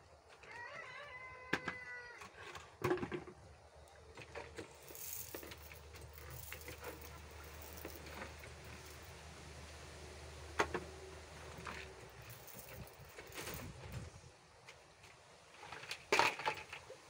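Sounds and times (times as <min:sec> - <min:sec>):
rustling: 0:04.2 - 0:09.2, 0:11.4 - 0:14.2.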